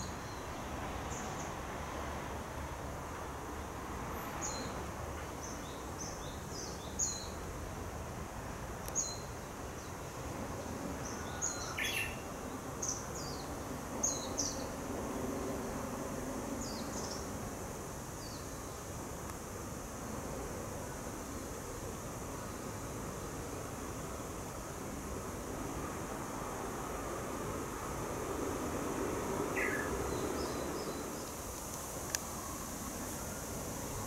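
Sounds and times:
outdoor ambience hiss: 0.0s - 34.0s
bush warbler singing: 5.4s - 7.4s, 8.9s - 10.2s, 11.0s - 14.8s, 16.6s - 17.4s, 28.8s - 34.0s
small birds calling: 29.6s - 31.4s.

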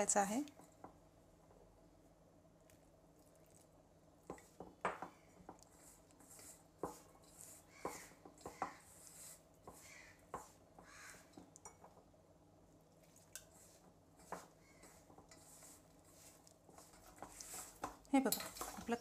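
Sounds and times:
dry flour rustling: 5.5s - 11.3s, 13.5s - 19.0s.

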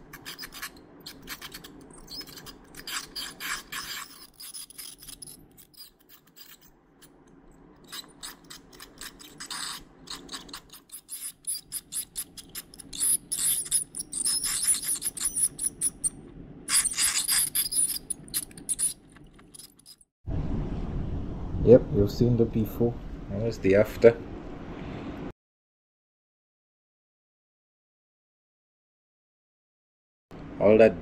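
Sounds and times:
dental scaler scraping teeth: 0.0s - 7.2s, 7.8s - 20.1s.

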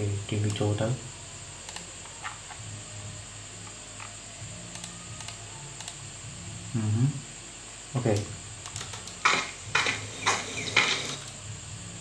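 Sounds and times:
electrical hum and hiss: 0.0s - 12.0s
mouse and keyboard clicks: 8.7s - 11.4s.

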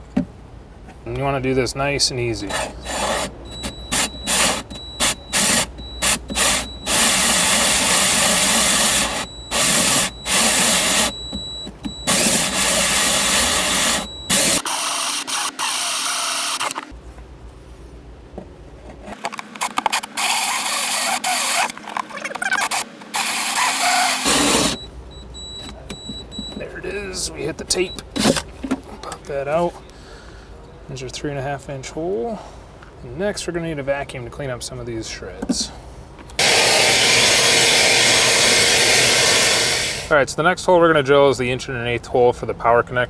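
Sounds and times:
drill hole saw cutting plastic: 2.5s - 16.9s, 19.3s - 24.9s, 36.4s - 40.1s.

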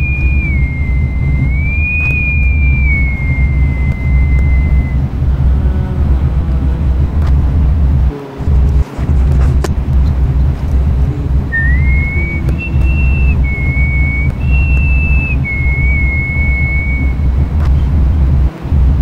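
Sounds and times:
whistled melody: 0.0s - 5.2s, 11.4s - 17.4s
heavy steady bass: 0.0s - 19.0s.

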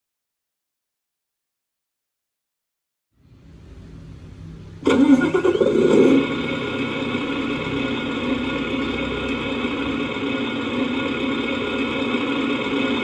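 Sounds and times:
simulated truck engine idling: 3.6s - 13.0s.

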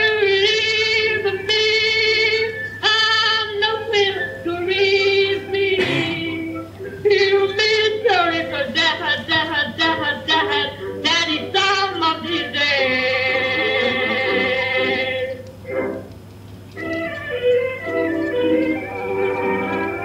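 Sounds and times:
high voice singing wordless notes: 0.0s - 15.9s.

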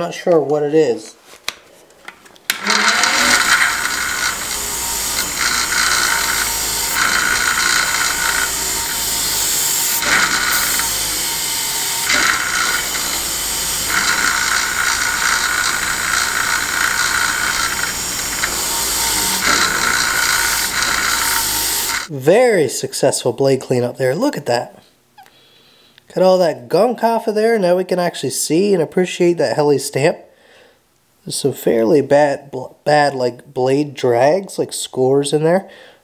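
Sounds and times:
grinder motor running: 2.5s - 22.1s
wire wheel scraping steel blade: 2.6s - 22.1s.

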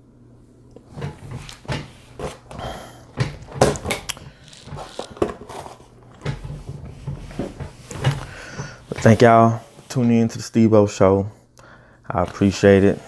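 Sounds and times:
objects being handled: 0.8s - 10.0s, 12.1s - 13.0s
person shifting at a table: 0.8s - 10.1s, 12.1s - 13.0s.

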